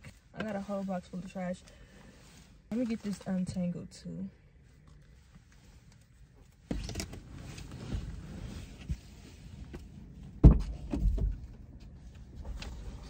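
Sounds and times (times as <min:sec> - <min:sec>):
car door clunk: 0:10.4 - 0:11.4
car door thump: 0:10.4 - 0:11.4.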